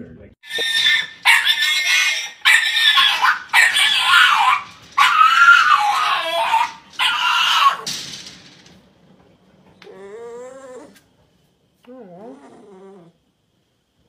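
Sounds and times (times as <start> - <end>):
puppy crying: 0.4 - 7.9.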